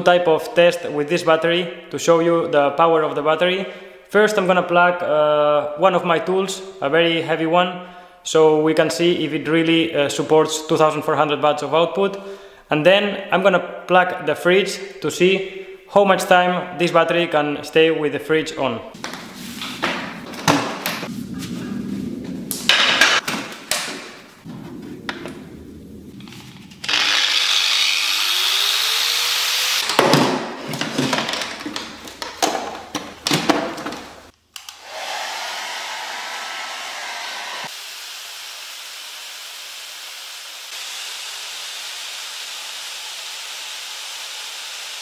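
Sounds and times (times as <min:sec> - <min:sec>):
power tool motor rushing: 0:26.3 - 0:30.0, 0:34.7 - 0:45.0
hair dryer blowing: 0:26.8 - 0:29.8, 0:34.6 - 0:43.2
tool handling clatter and knocks: 0:29.9 - 0:34.2.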